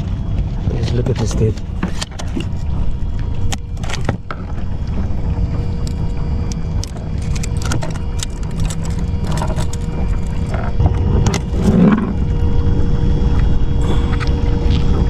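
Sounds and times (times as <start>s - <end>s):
water against kayak hull: 0.0s - 15.0s.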